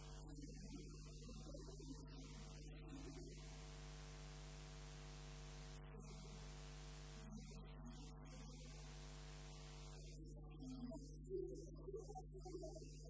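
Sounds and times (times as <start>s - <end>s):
electrical mains hum: 0.0s - 11.5s.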